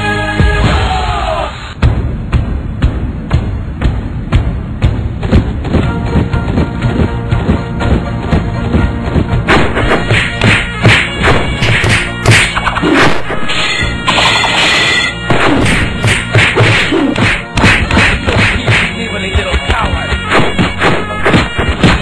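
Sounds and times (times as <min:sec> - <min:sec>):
cartoon whacks and hits: 0:09.5 - 0:18.9, 0:20.3 - 0:22.0.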